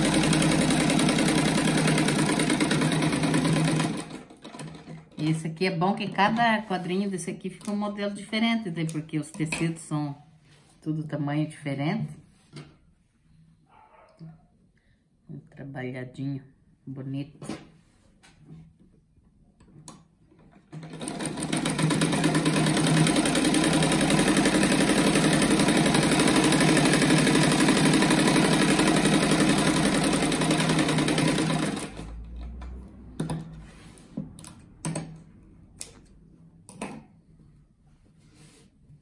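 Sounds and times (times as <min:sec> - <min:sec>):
sewing machine stitching: 0:00.0 - 0:05.3, 0:20.4 - 0:32.6.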